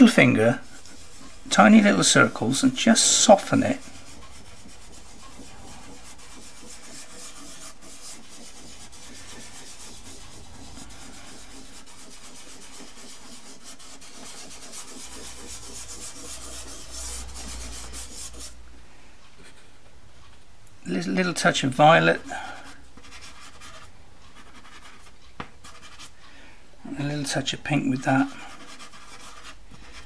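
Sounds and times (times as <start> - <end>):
fingertip rubbing pastel on paper: 0.1 - 18.6, 22.6 - 26.1, 28.2 - 30.0.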